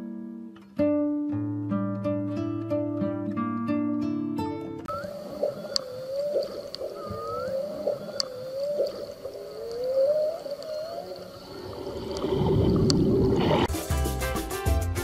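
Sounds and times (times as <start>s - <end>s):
sharp clicks: 4.9s - 11.4s
marine mammal tonal calls: 4.9s - 13.7s.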